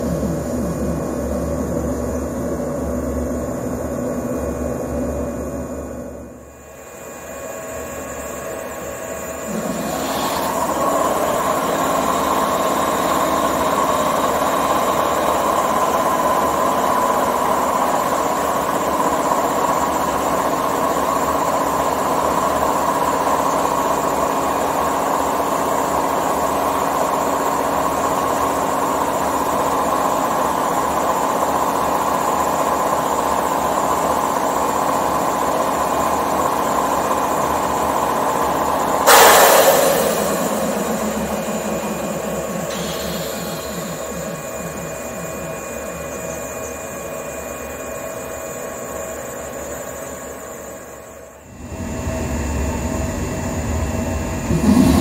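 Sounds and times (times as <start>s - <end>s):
electric air compressor running: 6.6s - 46.8s.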